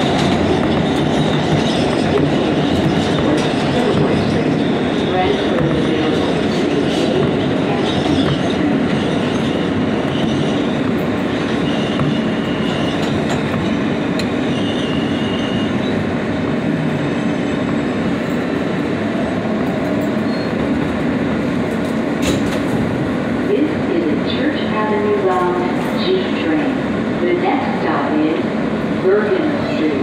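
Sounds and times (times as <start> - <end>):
train wheels rumbling on rails: 0.0 - 30.0
high wheel squeals: 11.4 - 13.2, 14.4 - 16.0.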